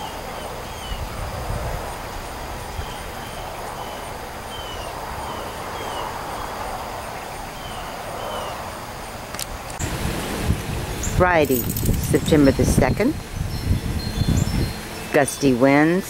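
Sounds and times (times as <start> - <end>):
wind rushing through leaves: 0.0 - 16.0
bird chirping: 2.8 - 8.6, 10.9 - 15.9.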